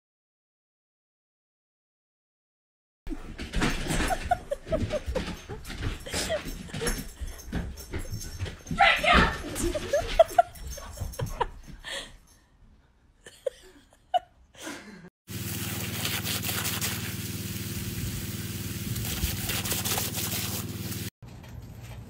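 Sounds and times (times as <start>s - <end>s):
dog biting at hose water: 15.3s - 17.4s, 18.8s - 21.1s.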